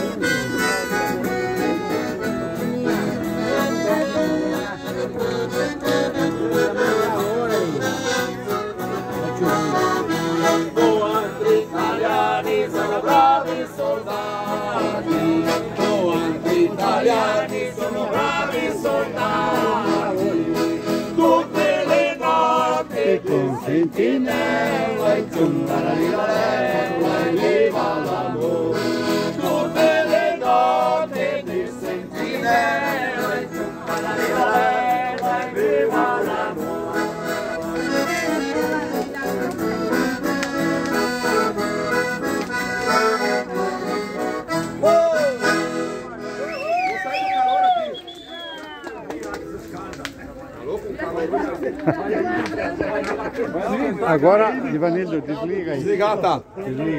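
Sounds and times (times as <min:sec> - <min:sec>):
acoustic guitar: 0:00.0 - 0:47.0
accordion: 0:00.0 - 0:47.2
men singing: 0:10.5 - 0:37.8.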